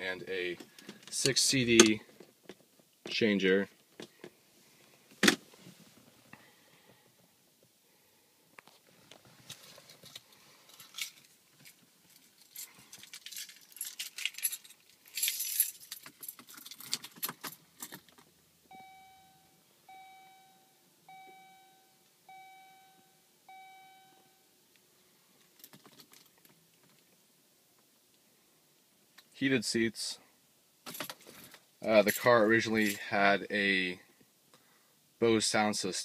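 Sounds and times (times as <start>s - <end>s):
metallic jingling and clicks: 10.8s - 18.0s
car warning chime: 18.7s - 24.6s.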